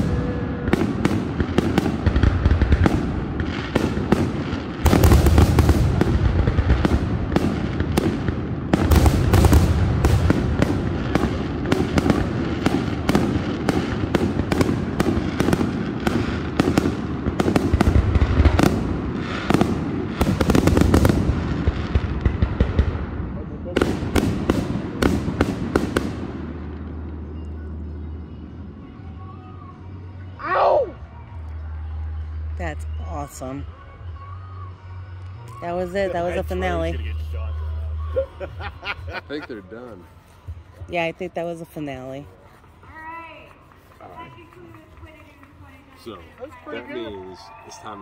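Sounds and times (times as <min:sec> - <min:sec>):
low rumble: 0:00.0 - 0:16.3
fireworks bursting with sharp bangs: 0:00.0 - 0:27.9.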